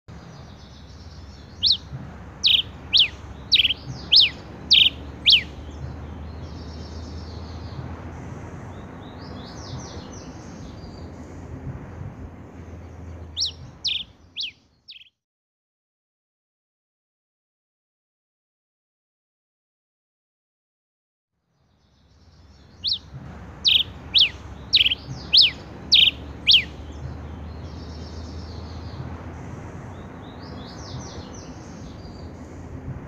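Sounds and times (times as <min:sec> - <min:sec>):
low rumble: 0:00.1 - 0:14.4
bird chirping: 0:00.2 - 0:07.9, 0:12.6 - 0:15.2, 0:21.8 - 0:32.7
bird twittering: 0:00.5 - 0:07.5, 0:13.2 - 0:15.1, 0:22.4 - 0:29.0.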